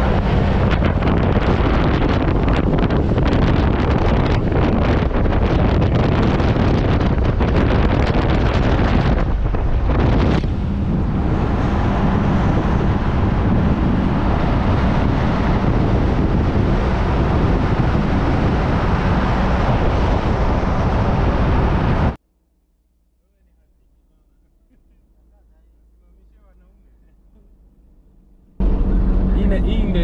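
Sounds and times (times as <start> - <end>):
engine and tyre rumble: 0.0 - 22.2, 23.6 - 30.0
wind buffeting microphone: 0.0 - 22.2.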